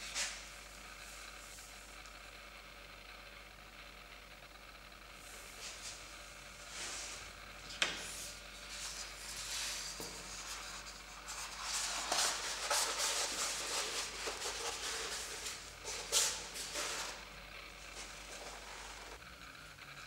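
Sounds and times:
paper rustling and sliding on metal: 7.8 - 17.3.

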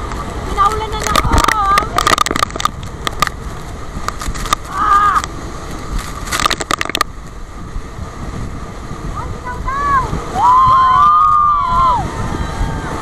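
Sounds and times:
sea spray splashes: 0.0 - 13.0
wind buffeting microphone: 0.0 - 13.0
person crying out: 4.7 - 5.2.

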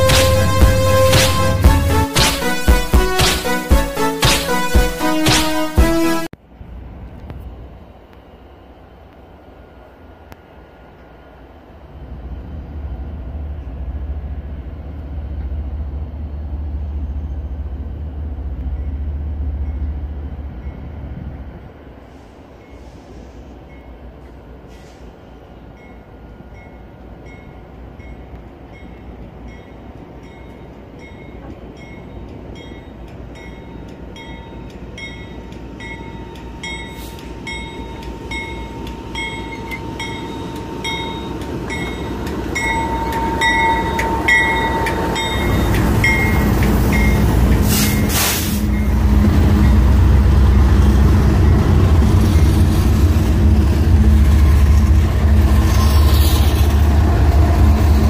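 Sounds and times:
diesel locomotives rumbling past: 0.0 - 58.0
locomotive bell ringing: 25.8 - 52.7
short hiss: 47.6 - 48.7.

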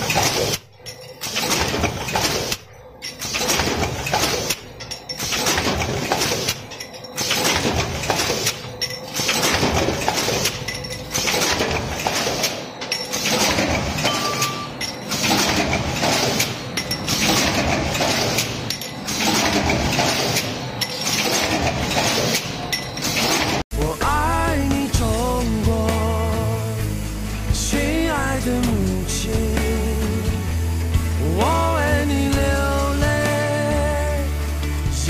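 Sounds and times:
stamping press metal clattering: 0.0 - 23.6.

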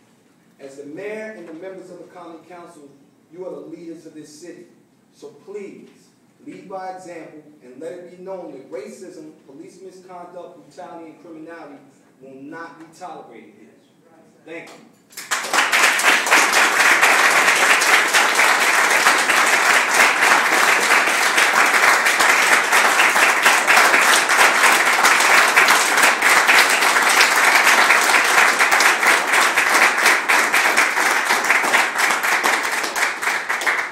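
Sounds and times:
people applauding: 15.1 - 33.9.

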